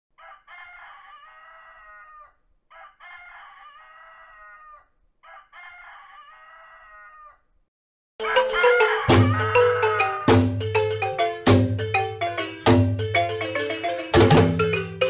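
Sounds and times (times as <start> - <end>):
rooster crowing: 0.1 - 7.6, 8.2 - 10.6.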